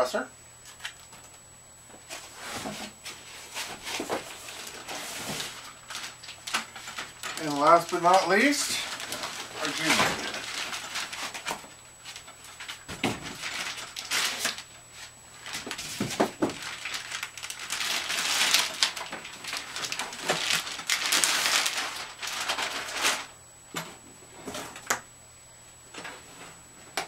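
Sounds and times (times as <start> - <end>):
knocks of handled packing: 1.9 - 14.6, 15.4 - 25.0
plastic sheet rustling: 2.1 - 23.4.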